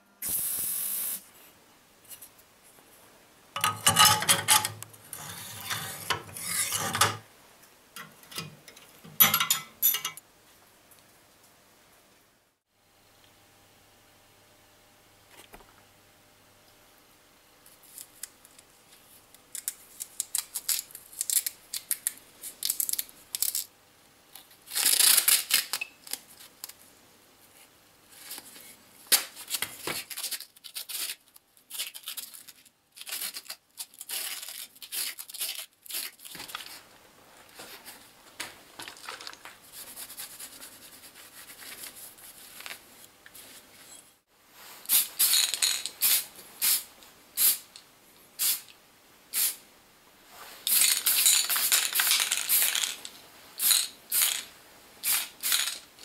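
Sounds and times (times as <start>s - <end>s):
spray paint can hissing: 0.2s - 1.2s, 44.9s - 46.8s, 47.4s - 47.6s, 48.4s - 48.7s, 50.7s - 52.9s, 53.6s - 54.4s, 55.0s - 55.8s
masking tape pulled and torn: 19.5s - 23.6s, 24.4s - 26.8s, 29.1s - 36.7s.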